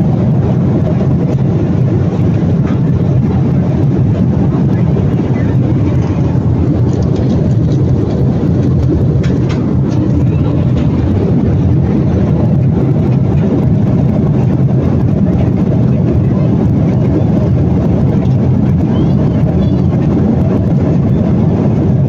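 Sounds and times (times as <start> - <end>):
jet cabin drone: 0.0 - 22.0.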